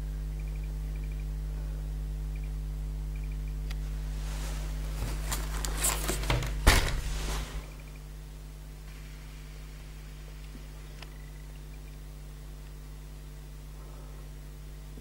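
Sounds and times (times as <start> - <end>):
low electrical hum: 0.0 - 15.0
rustling and knocking of handling: 4.2 - 7.8.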